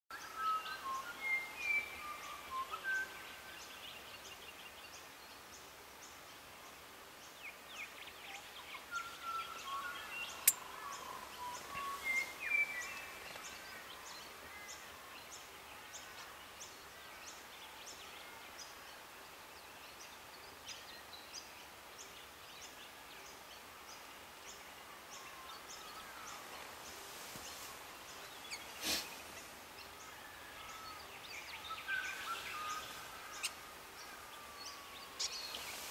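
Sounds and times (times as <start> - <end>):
birds calling and singing: 7.2 - 35.9.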